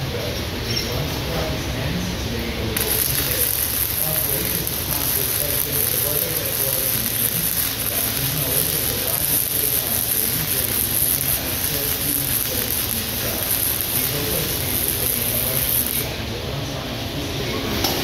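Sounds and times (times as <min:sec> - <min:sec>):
welding arc hissing: 0:02.8 - 0:16.3.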